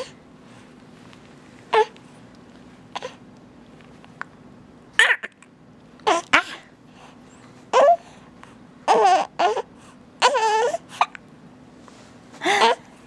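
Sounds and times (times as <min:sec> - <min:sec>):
infant cooing and fussing: 0:08.9 - 0:11.2.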